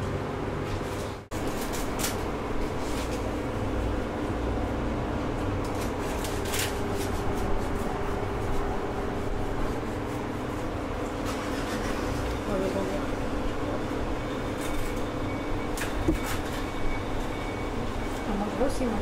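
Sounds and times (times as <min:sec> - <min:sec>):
steady mechanical hum: 0:00.0 - 0:19.0.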